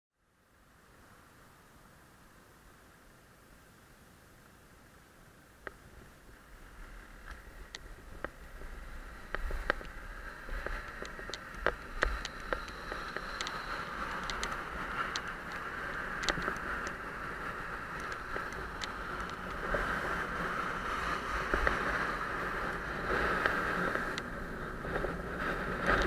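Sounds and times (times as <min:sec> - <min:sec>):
bicycle tyre hiss on asphalt: 0:00.4 - 0:26.0
bike ticks and rattles: 0:05.6 - 0:26.0
wind noise on microphone: 0:05.6 - 0:26.0.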